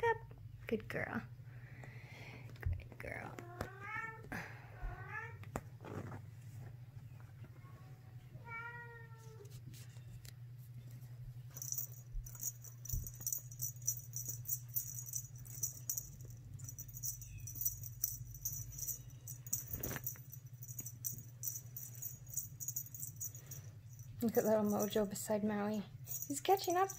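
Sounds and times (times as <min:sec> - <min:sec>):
small bell jingling: 0:11.5 - 0:26.9.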